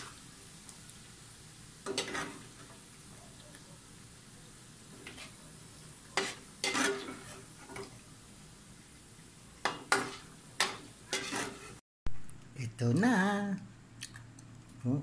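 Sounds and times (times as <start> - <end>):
faint frying sizzle: 0.0 - 11.8.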